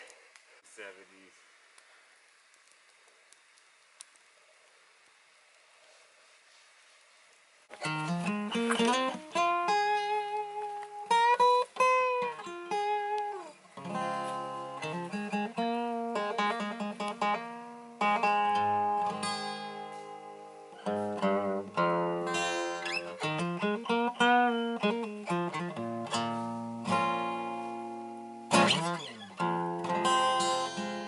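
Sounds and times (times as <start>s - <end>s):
acoustic guitar picking: 7.7s - 31.0s.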